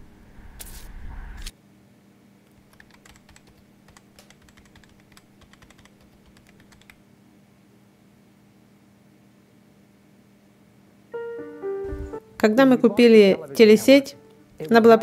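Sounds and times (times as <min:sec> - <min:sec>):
low steady hum: 0:03.4 - 0:15.0.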